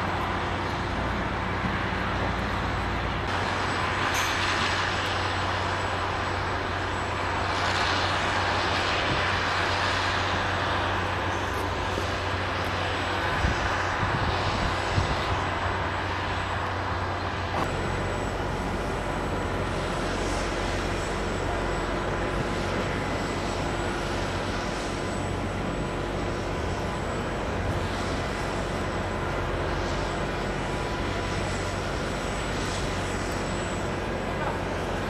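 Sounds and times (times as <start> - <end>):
diesel engine drone: 0.0 - 35.0.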